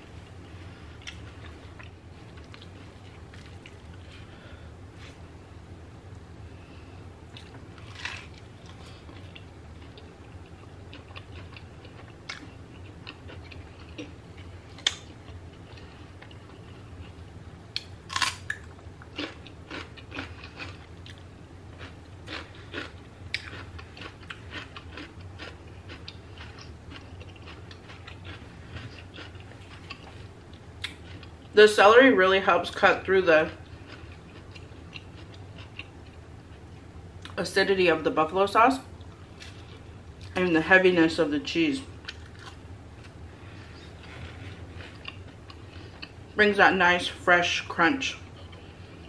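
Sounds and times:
low steady hum: 0:00.0 - 0:49.0
person chewing food: 0:00.2 - 0:04.2, 0:07.3 - 0:31.5, 0:33.5 - 0:37.4, 0:42.0 - 0:46.4.

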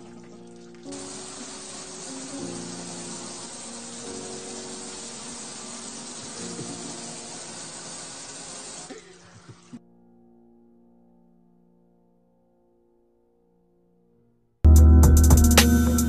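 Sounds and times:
water spraying against glass: 0:00.2 - 0:09.8.

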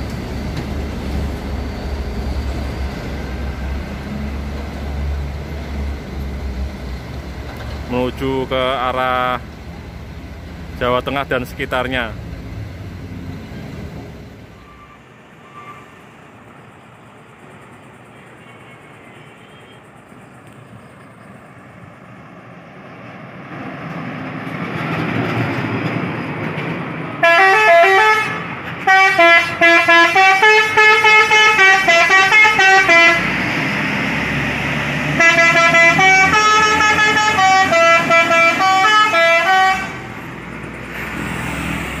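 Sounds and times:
truck engine rumble: 0:00.0 - 0:42.0
truck musical air horn tune: 0:27.2 - 0:33.5, 0:35.1 - 0:40.2.

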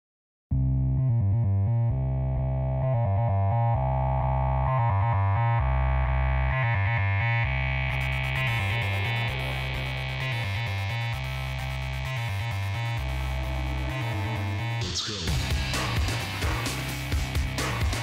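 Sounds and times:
synthesizer music with heavy bass: 0:00.8 - 0:18.0.

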